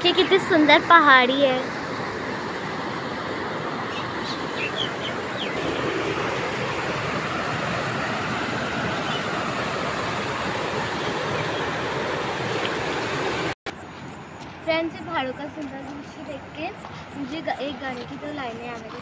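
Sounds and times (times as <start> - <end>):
river water rushing over rocks: 2.1 - 13.6.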